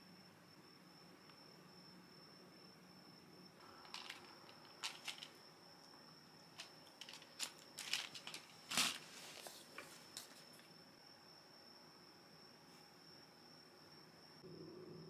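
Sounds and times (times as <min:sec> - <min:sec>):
cardboard box crinkling: 0:03.9 - 0:05.3, 0:06.6 - 0:09.6.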